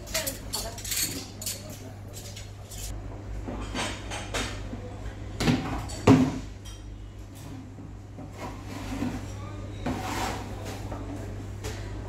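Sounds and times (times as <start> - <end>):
dishes and cutlery clinking: 0.0 - 4.6.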